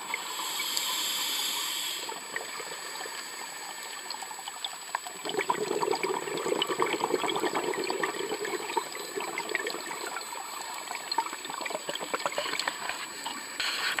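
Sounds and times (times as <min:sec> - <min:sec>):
underwater bubbles gurgling: 0:02.0 - 0:13.6.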